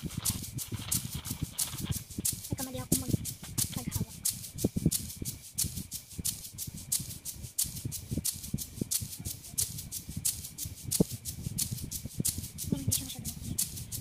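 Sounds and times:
shaker-like beat: 0:00.0 - 0:14.0.

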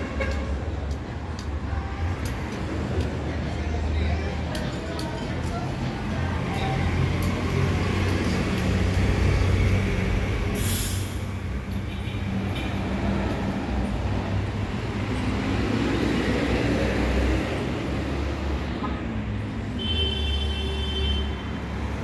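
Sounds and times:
bus engine droning: 0:00.0 - 0:11.8
street traffic: 0:00.0 - 0:22.0.

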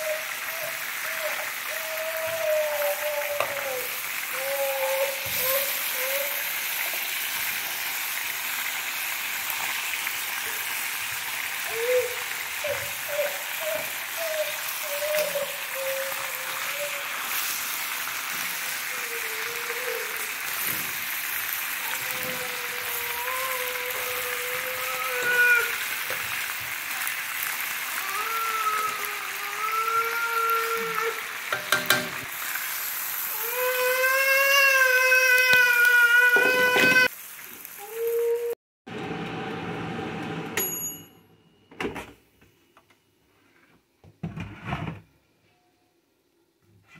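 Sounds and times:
baby whimpering and crying: 0:00.0 - 0:06.5, 0:11.6 - 0:17.2, 0:18.6 - 0:20.5, 0:21.8 - 0:26.0, 0:27.9 - 0:31.7, 0:33.3 - 0:37.1
chicken and potatoes sizzling in pan: 0:00.0 - 0:39.9
water poured into hot pan: 0:03.6 - 0:12.6, 0:14.6 - 0:38.5.

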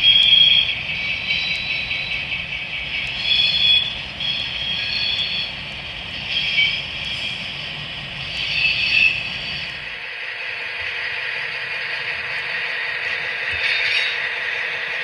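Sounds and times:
wheel flange squeals: 0:00.0 - 0:07.6, 0:08.3 - 0:09.8, 0:13.6 - 0:14.4
model locomotive running sound: 0:00.0 - 0:15.0.

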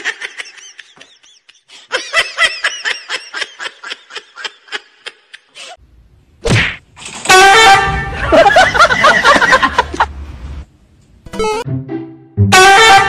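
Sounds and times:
person laughing: 0:00.0 - 0:05.8, 0:08.0 - 0:10.1.

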